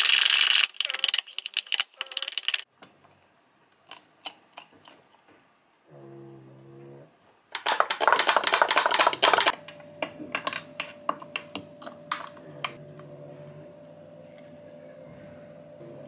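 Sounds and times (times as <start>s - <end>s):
ice cubes clattering into glass: 7.6s - 9.5s.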